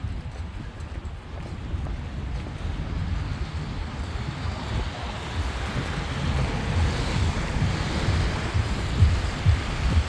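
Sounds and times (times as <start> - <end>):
wind buffeting microphone: 0.0 - 10.0
car tyres hissing on wet road: 2.8 - 10.0.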